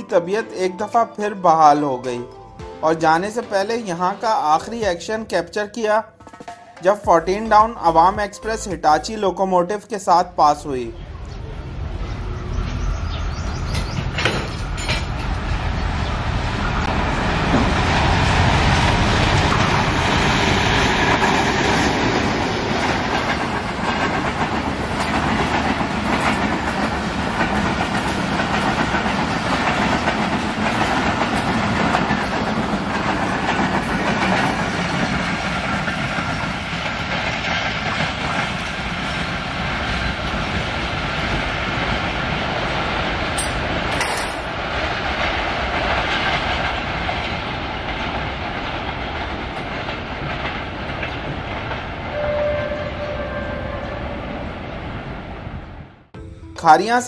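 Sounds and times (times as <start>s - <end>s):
train wheels clickety-clack: 13.3s - 15.6s, 16.6s - 53.6s.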